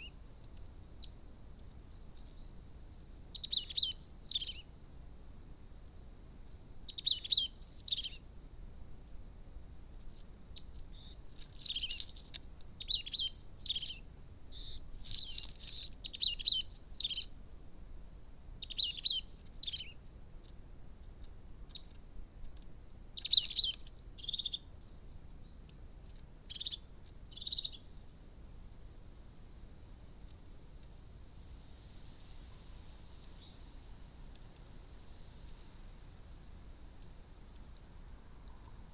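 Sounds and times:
songbird chirping: 0.0 - 8.3, 9.6 - 17.4, 18.5 - 38.9.

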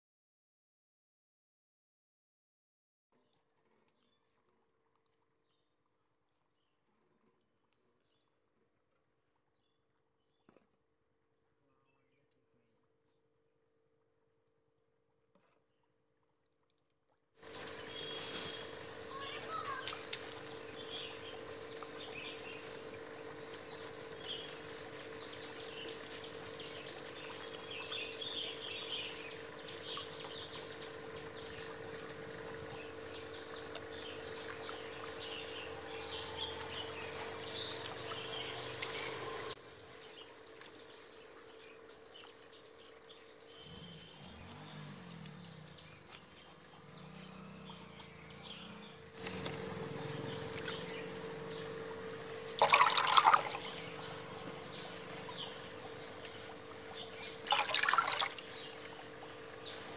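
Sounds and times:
water sloshing in tank: 15.3 - 59.9
birds chirping: 17.4 - 59.9
steady hum: 47.9 - 59.9.

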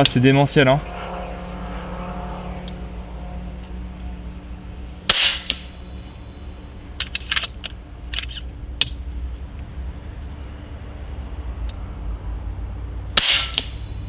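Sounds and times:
steady low hum: 0.0 - 14.0
air rifle shot: 5.1 - 5.7, 13.2 - 13.8.

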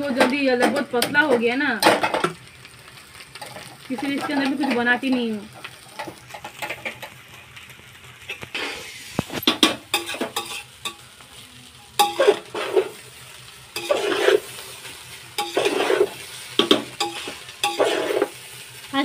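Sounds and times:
metal spoon scraping a pot: 8.5 - 11.0, 12.0 - 13.0, 13.8 - 14.6, 15.4 - 18.4.

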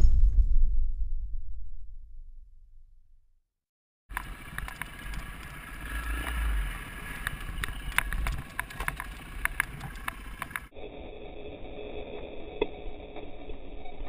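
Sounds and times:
dirt bike engine running low: 4.1 - 14.0
wind rumble on microphone: 7.1 - 10.7.

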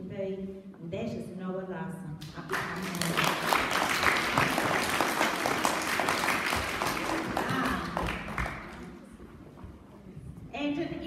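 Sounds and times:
audience applauding: 2.5 - 9.1.

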